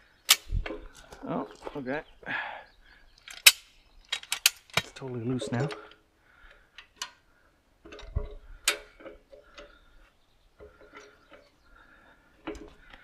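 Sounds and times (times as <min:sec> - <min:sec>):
tools clicking and knocking: 0:03.2 - 0:06.0, 0:07.8 - 0:09.8.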